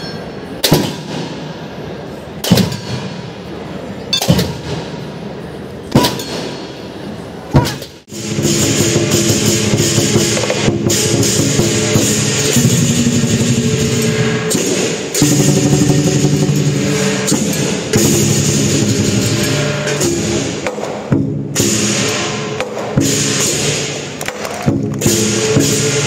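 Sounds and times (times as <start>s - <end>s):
cymbals ringing: 0.0s - 0.6s, 8.1s - 20.6s, 25.0s - 26.0s
lion dance drums: 7.6s - 26.0s.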